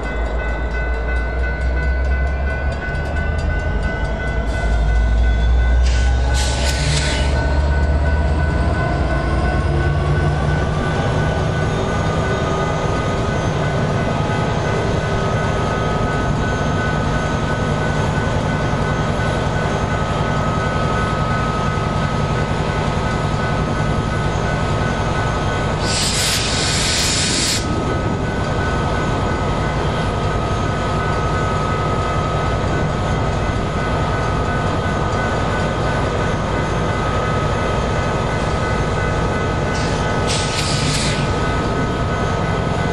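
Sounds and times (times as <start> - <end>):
diesel locomotives running: 0.0 - 42.9
air hiss: 5.9 - 7.4, 25.8 - 27.7, 39.8 - 41.4.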